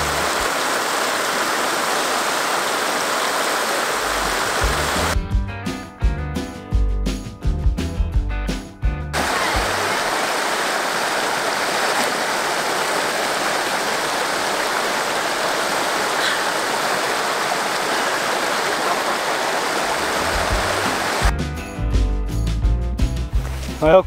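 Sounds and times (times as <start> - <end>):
rush of falling water: 0.0 - 5.2, 9.2 - 21.3.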